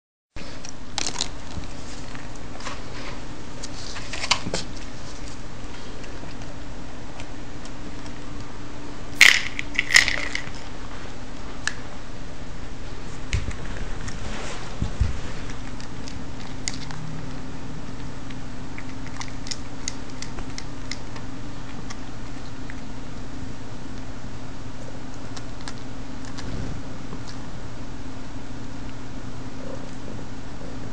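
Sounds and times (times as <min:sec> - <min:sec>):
steady low hum: 0:00.3 - 0:30.9
cat chewing dry kibble: 0:04.8 - 0:08.6, 0:13.1 - 0:23.0, 0:25.1 - 0:27.4.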